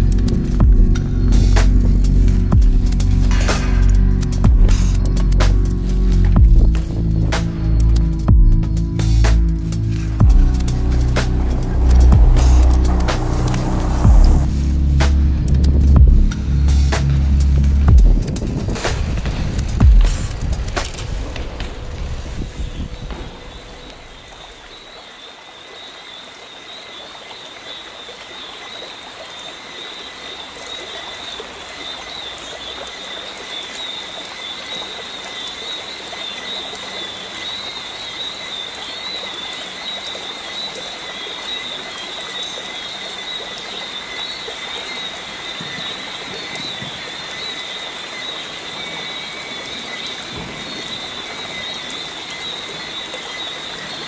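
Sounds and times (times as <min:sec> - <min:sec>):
hiss of falling water: 0:00.0 - 0:54.0
frog chorus: 0:22.3 - 0:54.0.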